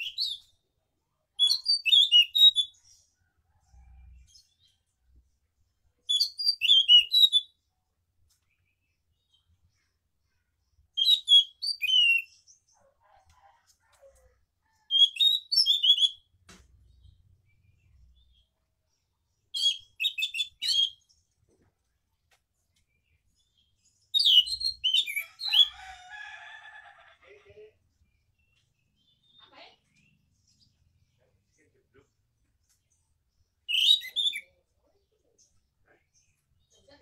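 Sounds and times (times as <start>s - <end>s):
lower bird twittering: 24.1s - 26.1s.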